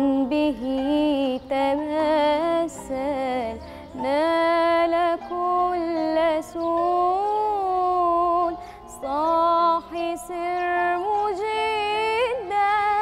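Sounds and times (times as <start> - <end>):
woman singing a devotional chant: 0.0 - 13.0.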